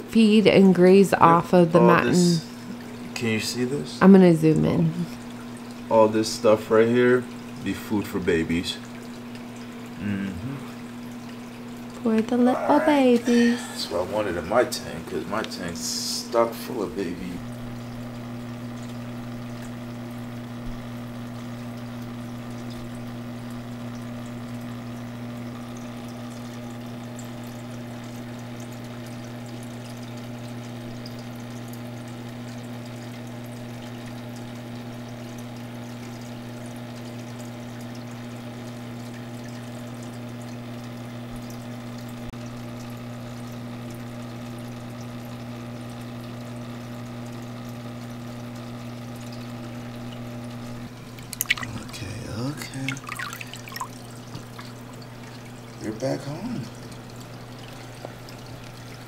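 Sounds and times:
aquarium pump humming: 0.0s - 59.0s
pouring water: 13.4s - 59.0s.

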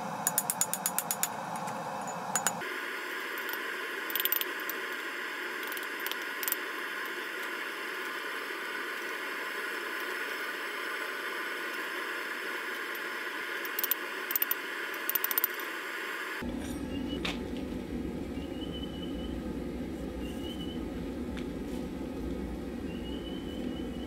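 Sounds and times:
steady hiss: 0.0s - 16.4s.

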